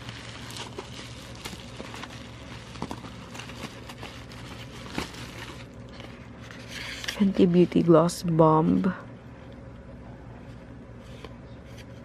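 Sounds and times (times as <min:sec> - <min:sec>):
bubble wrap crinkling and crackling: 0:00.0 - 0:07.9.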